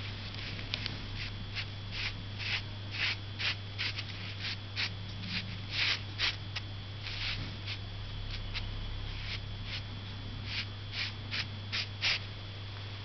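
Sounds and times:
brush swishing on paper: 0:00.0 - 0:06.4.

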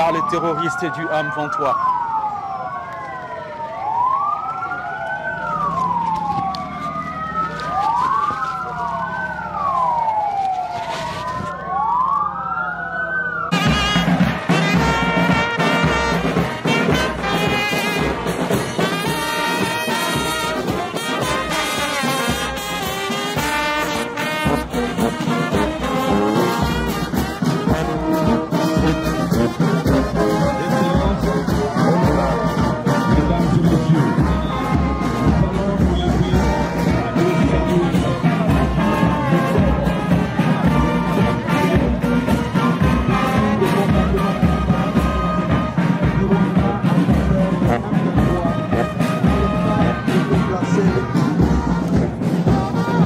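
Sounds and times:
ambulance sirens wailing: 0:00.0 - 0:53.0
brass band playing: 0:13.5 - 0:53.0.

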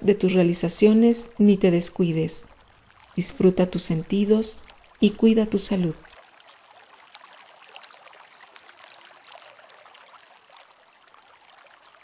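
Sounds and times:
water trickling: 0:00.0 - 0:12.0.

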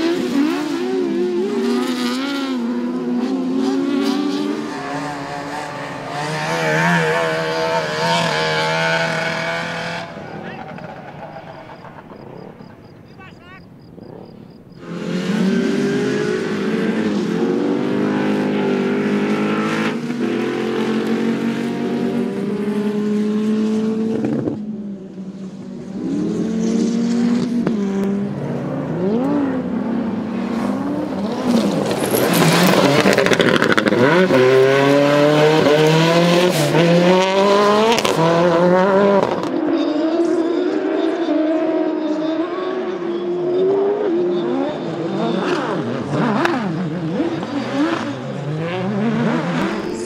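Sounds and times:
race car engines revving: 0:00.0 - 0:50.0.

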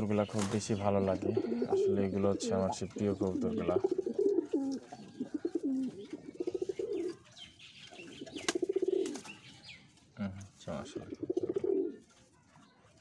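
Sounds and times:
pigeons cooing: 0:00.0 - 0:09.5, 0:10.4 - 0:12.1.

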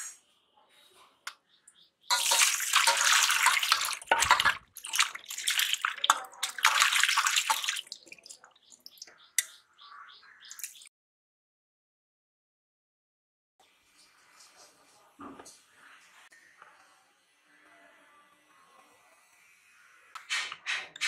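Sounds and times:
water splashing in a metal bowl: 0:02.1 - 0:09.5, 0:10.5 - 0:10.9.

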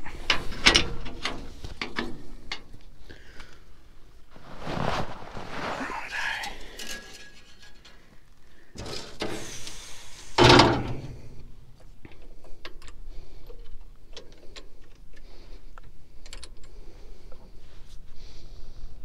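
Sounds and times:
loud metal clunk: 0:10.4 - 0:11.1
small sharp clicks and rattles: 0:11.8 - 0:17.4.

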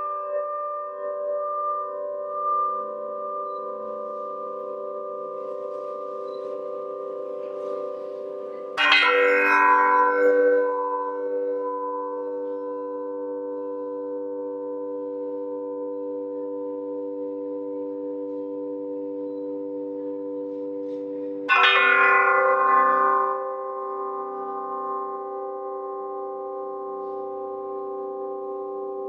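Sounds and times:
metal plates ringing: 0:07.3 - 0:11.3, 0:21.5 - 0:24.7.

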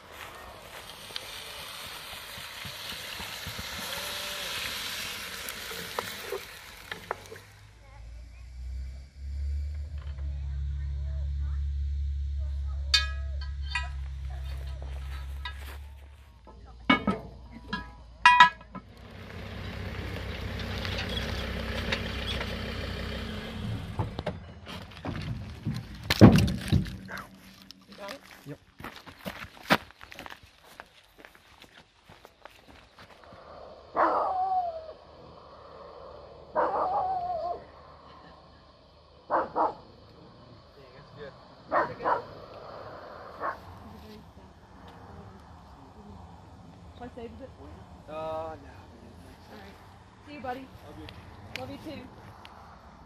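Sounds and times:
food sizzling in a pot: 0:00.0 - 0:07.8
vehicle engine running: 0:00.0 - 0:28.6, 0:32.2 - 0:53.0
firewood knocking and thudding: 0:24.0 - 0:29.8.

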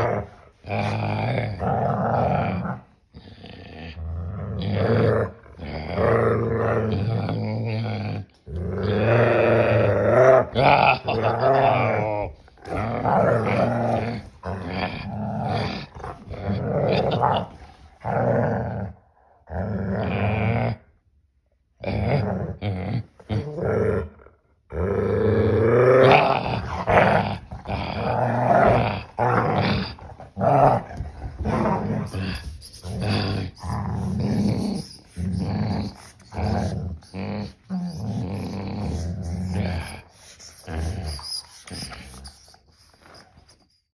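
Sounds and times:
dog growling: 0:00.0 - 0:21.0, 0:21.8 - 0:43.7.

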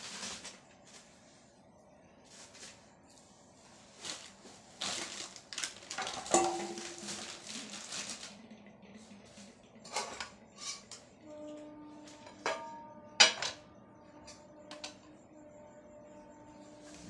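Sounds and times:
spoon scraping in metal pot: 0:09.8 - 0:13.6.

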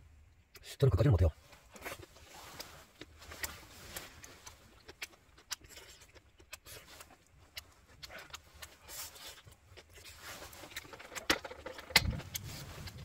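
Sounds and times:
small clicks and crackles: 0:01.4 - 0:13.0.

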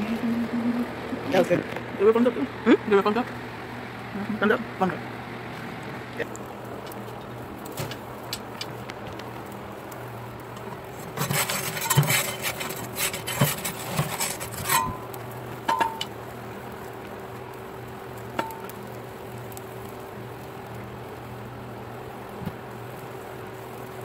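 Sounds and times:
metal peel scraping stone: 0:10.6 - 0:16.1.

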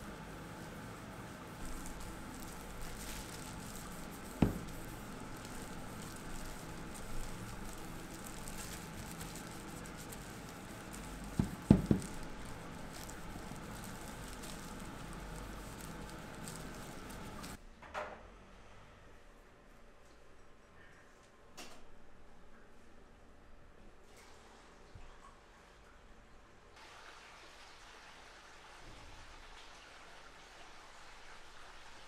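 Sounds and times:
cloth rubbing on wood: 0:00.0 - 0:17.6
plastic gloves crinkling: 0:00.0 - 0:17.6
board knocking on work surface: 0:04.4 - 0:04.8, 0:11.4 - 0:12.2.

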